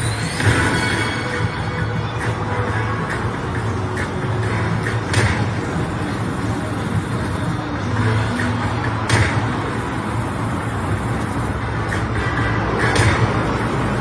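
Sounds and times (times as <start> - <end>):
sharp hit sound: 0.0 - 2.0.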